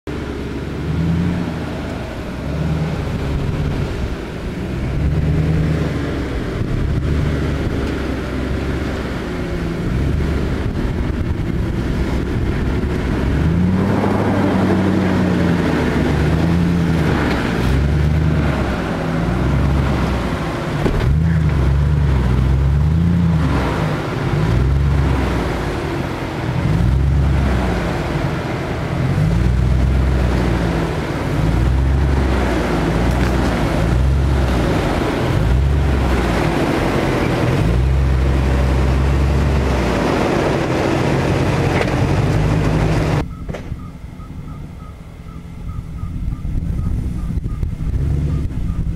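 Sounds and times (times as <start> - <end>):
engine revving: 0.1 - 43.3, 46.6 - 48.9
tyres scrabbling on dirt: 31.4 - 43.6.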